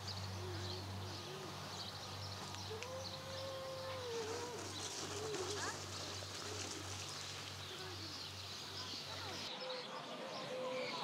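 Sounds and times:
wavering bird calls: 0.0s - 6.3s.

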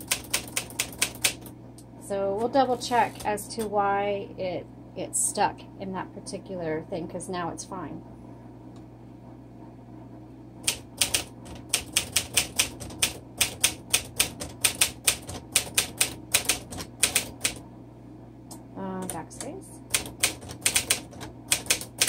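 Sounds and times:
typewriter key strikes: 20.0s - 22.0s.

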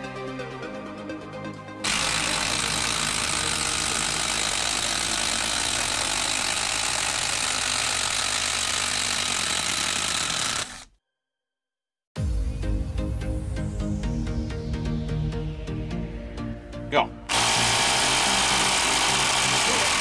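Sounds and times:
impact driver hammering: 1.8s - 10.9s, 17.3s - 20.0s.

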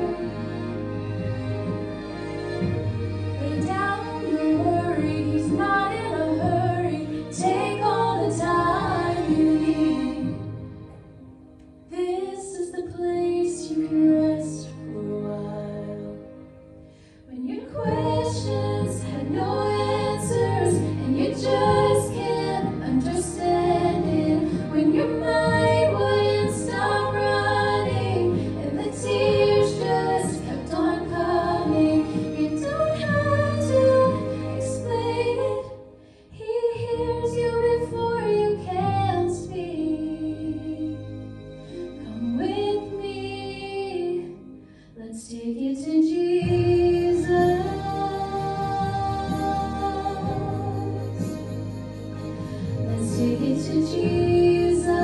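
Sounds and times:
low musical accompaniment: 0.0s - 55.0s
women singing gospel duet: 3.4s - 10.6s, 17.3s - 35.8s, 36.4s - 41.0s, 45.1s - 51.5s, 52.8s - 55.0s.

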